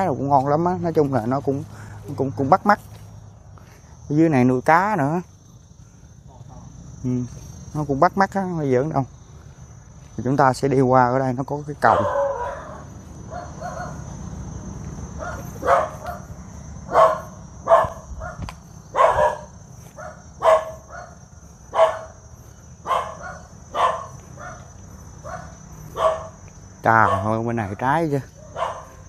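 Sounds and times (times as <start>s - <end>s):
dog barking: 11.8s - 14.0s, 15.2s - 16.3s, 16.9s - 22.2s, 22.8s - 27.4s, 28.4s - 29.0s.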